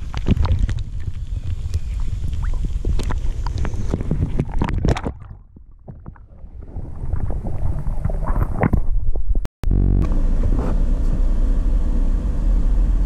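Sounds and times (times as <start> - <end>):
water sloshing underwater: 0.0 - 9.5
wind noise on microphone: 0.0 - 10.8.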